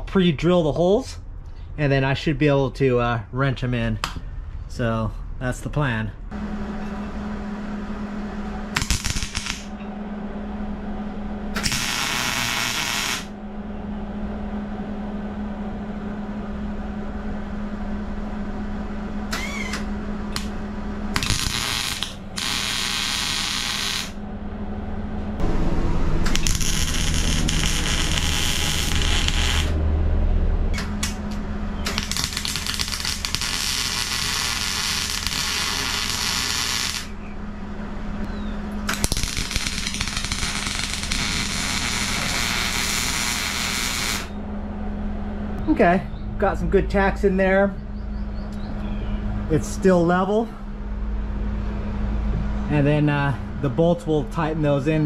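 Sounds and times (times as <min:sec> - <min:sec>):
steady low hum: 0:00.0 - 0:55.0
crackling welding arc: 0:08.8 - 0:09.7, 0:11.6 - 0:13.3, 0:21.1 - 0:24.2, 0:26.2 - 0:29.8, 0:31.8 - 0:37.2, 0:38.8 - 0:44.3.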